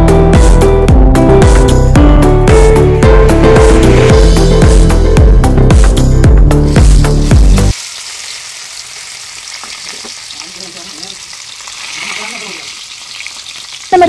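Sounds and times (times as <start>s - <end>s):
background music: 0.0s - 7.7s
fish sizzling in hot oil: 6.5s - 14.0s.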